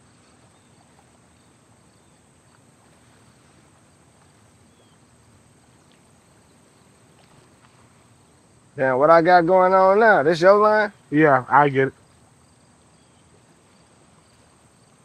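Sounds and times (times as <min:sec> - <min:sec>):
faint ticks: 0:02.4 - 0:04.5, 0:05.6 - 0:08.1.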